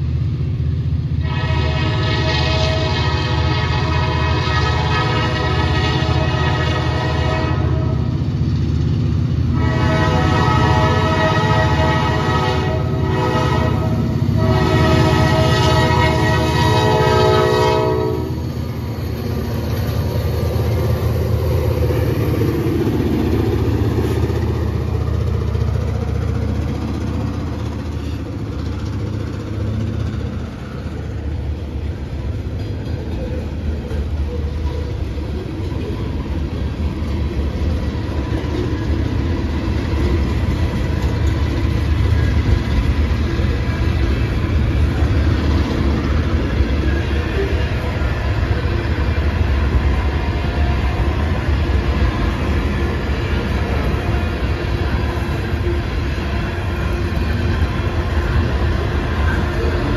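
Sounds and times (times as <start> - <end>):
diesel locomotive engines rumbling: 0.0 - 59.9
train wheels clickety-clack on rails: 0.0 - 59.9
locomotive horn blasts: 1.2 - 8.1, 9.5 - 18.5.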